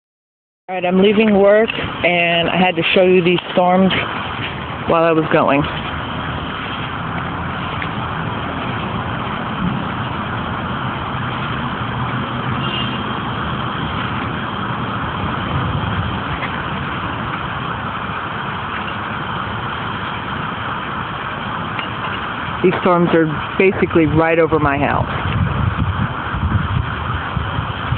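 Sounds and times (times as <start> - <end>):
car engine hum: 0.7 - 27.9
road noise rushing: 0.7 - 27.9.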